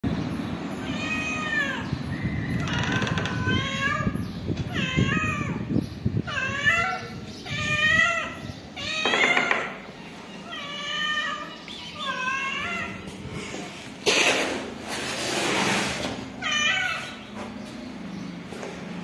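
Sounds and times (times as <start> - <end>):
cat meowing: 0.8 - 1.9, 3.3 - 5.7, 6.3 - 13.1.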